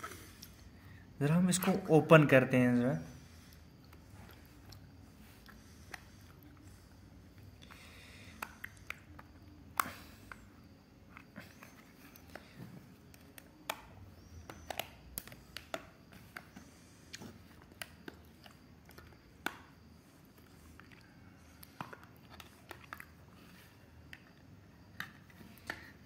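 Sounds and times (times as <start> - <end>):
plastic clicks and snaps: 13.1 - 16.6.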